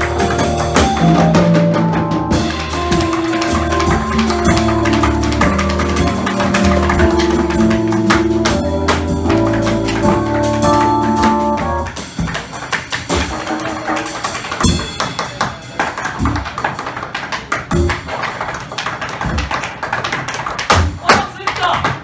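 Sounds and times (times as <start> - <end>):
tap shoes on stage floor: 0.0 - 1.7, 2.4 - 22.0
music with sustained notes: 0.0 - 11.9.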